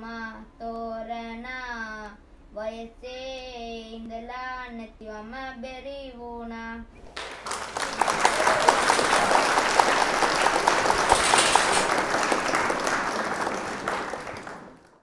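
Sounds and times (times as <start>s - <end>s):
audience applause: 7.1s - 15.0s.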